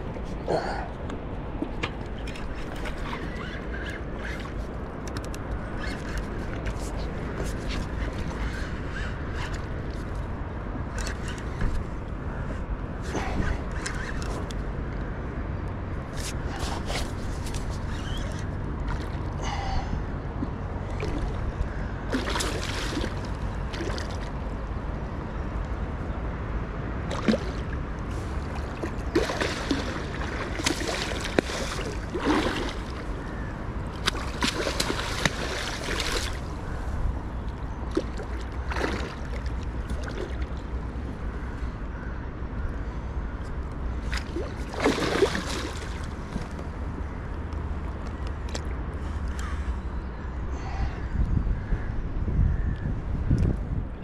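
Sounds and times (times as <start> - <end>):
steady low rumble: 0.0 - 2.3
water slapping against boat: 22.1 - 24.4, 27.0 - 27.8, 28.4 - 40.9, 44.0 - 46.8.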